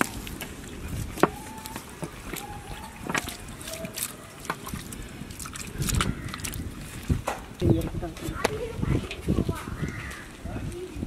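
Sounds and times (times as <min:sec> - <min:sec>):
wet meat sounds: 0:00.0 - 0:07.9.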